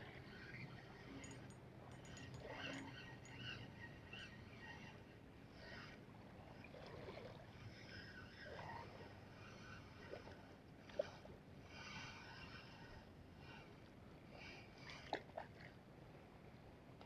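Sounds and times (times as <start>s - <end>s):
sea water lapping at shore: 3.8s - 15.9s.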